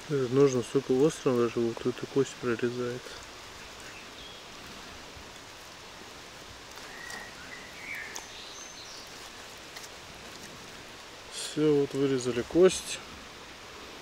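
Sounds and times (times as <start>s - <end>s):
outdoor background hiss: 0.0s - 14.0s
faint bird chirps: 6.8s - 9.2s.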